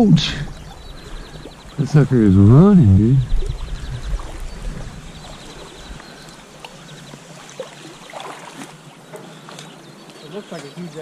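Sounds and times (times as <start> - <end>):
river water rushing: 4.2 - 9.4.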